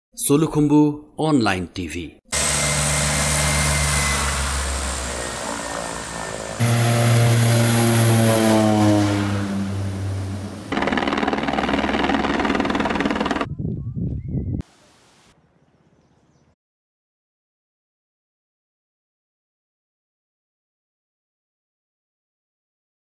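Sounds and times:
helicopter engine and rotor: 2.3s - 13.5s
turboprop engines running: 2.3s - 13.5s.

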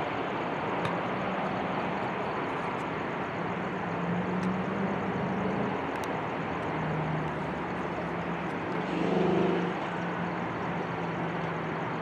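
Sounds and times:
jet engine roar: 7.3s - 10.6s.

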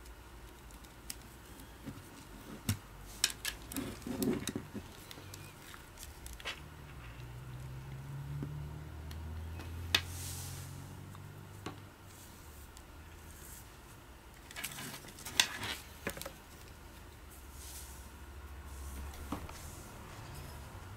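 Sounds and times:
clicks and rustles: 14.3s - 16.9s.

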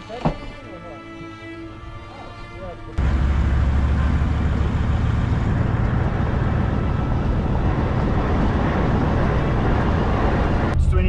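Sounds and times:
engine drone: 2.9s - 10.9s
road and wind noise: 3.0s - 10.8s.

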